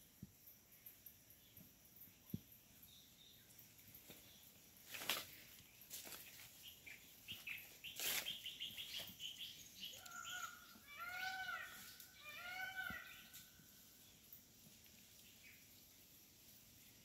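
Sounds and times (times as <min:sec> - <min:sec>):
rustling undergrowth: 0:03.7 - 0:16.6
birds chirping and calling: 0:05.9 - 0:14.2.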